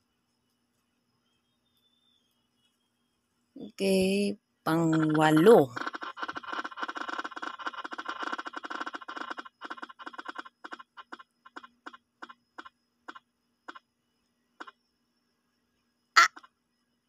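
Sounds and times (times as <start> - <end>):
phone app wheel ticking: 4.7 - 13.8.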